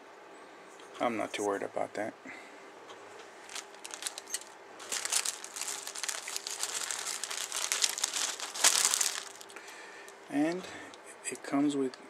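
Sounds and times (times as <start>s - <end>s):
plastic bag crinkling: 3.4s - 10.2s.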